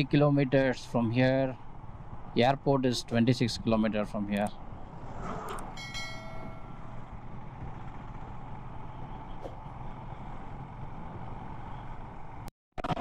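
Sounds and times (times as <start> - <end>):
motorcycle engine cruising: 4.4 - 12.5.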